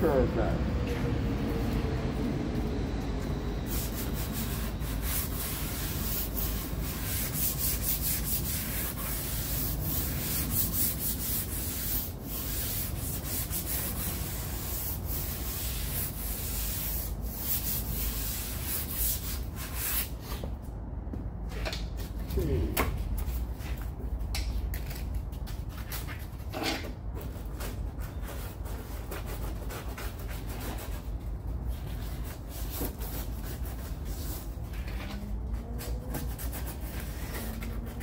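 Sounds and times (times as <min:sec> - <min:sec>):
sandpaper scraping back and forth: 0:03.6 - 0:20.4, 0:27.2 - 0:38.0.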